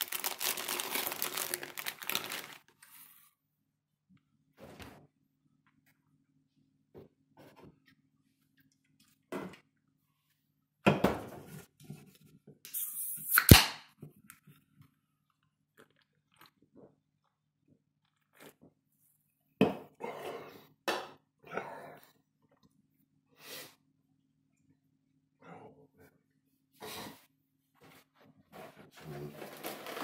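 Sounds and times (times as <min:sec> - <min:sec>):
sharp crack of can opening: 0:12.7 - 0:13.9.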